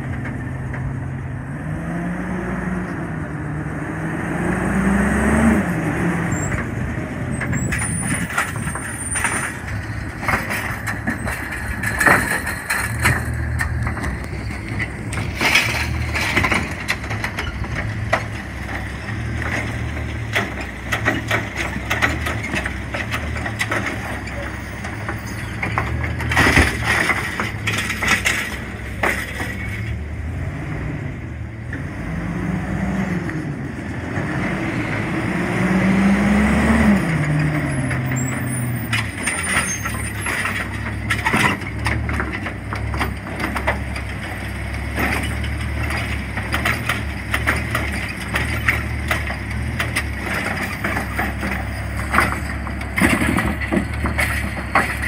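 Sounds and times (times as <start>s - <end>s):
garbage truck diesel engine: 0.0s - 55.0s
clunks from lift arm and carts: 7.4s - 30.1s, 37.2s - 55.0s.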